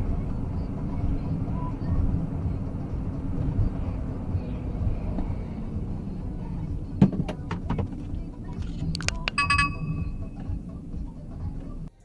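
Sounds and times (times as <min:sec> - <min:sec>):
car tyres and engine rumble: 0:00.0 - 0:12.0
sharp clicks: 0:08.9 - 0:09.5.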